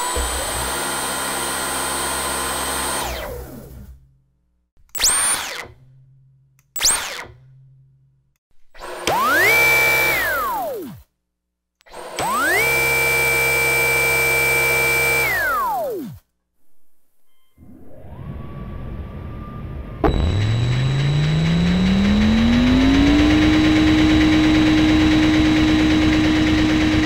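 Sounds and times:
vacuum motor whining: 0.0s - 4.0s, 8.8s - 11.0s, 11.9s - 16.2s, 17.6s - 27.0s.

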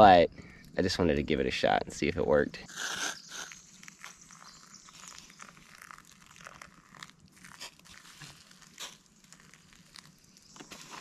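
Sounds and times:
faint crackling and rustling: 2.6s - 11.0s
water pouring into metal bowl: 4.3s - 7.1s.

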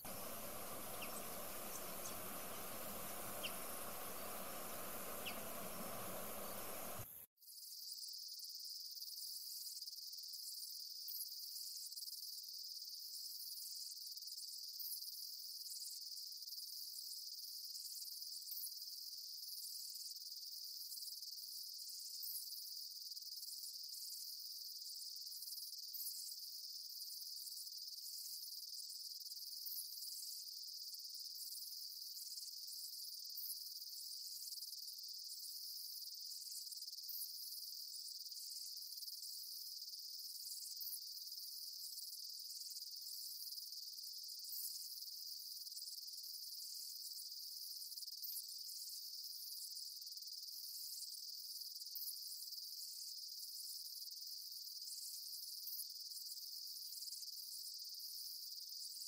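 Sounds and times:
outdoor hiss: 0.0s - 7.2s
insect high-pitched trill: 0.0s - 7.8s
faint insect chirps: 0.0s - 59.0s.

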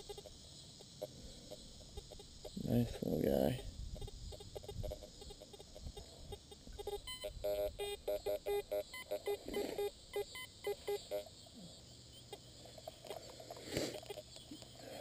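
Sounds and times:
metal detector beeps: 6.3s - 11.3s.

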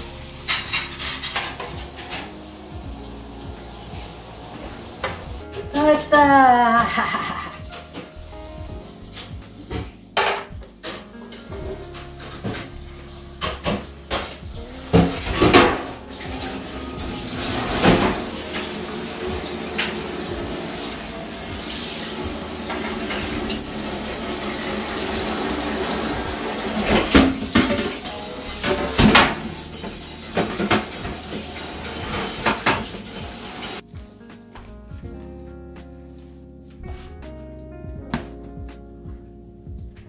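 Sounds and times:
dishes and pans clinking: 0.3s - 2.6s, 9.2s - 12.8s, 13.4s - 33.8s
sharp clatters of dishes: 26.8s - 33.8s.

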